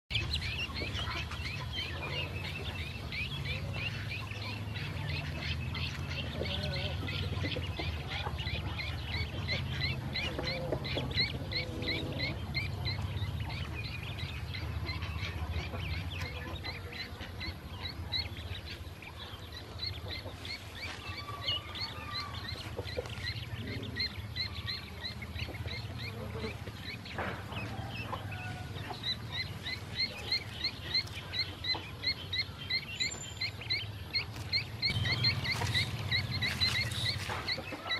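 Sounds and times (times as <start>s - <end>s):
ducklings peeping: 0.1s - 37.9s
low rumble: 33.8s - 37.6s.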